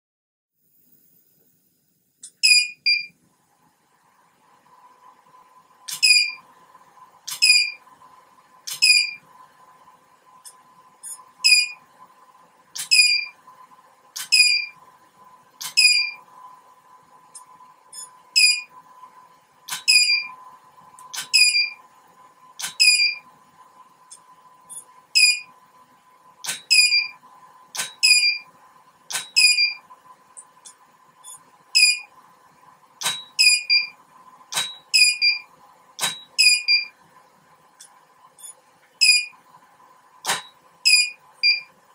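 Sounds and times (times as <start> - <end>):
faint high hum: 0.6 - 41.9
short high beep: 6.0 - 6.4.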